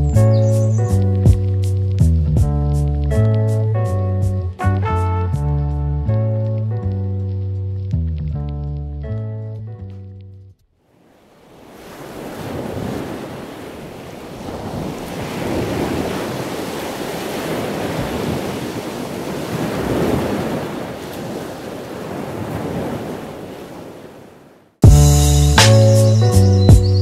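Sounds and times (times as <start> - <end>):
ocean waves breaking: 10.8 - 24.8.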